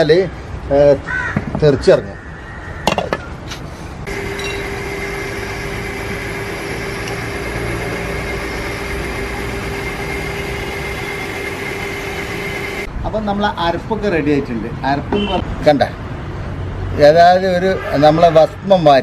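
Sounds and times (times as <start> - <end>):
mixer grinder humming and whining: 4.1 - 12.9.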